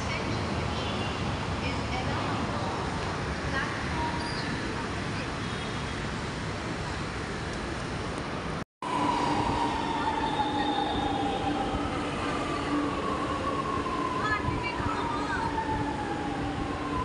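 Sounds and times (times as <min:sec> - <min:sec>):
outdoor city noise: 0:00.0 - 0:17.0
metro train running past: 0:08.8 - 0:17.0.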